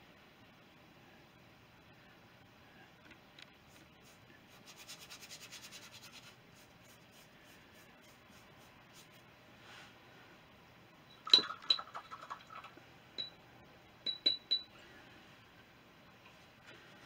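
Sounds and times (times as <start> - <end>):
painting tools clinking on glass: 14.1 - 14.7.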